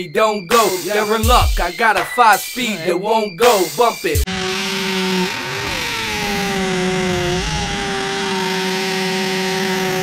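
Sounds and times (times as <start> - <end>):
drill boring into concrete: 4.3 - 10.0.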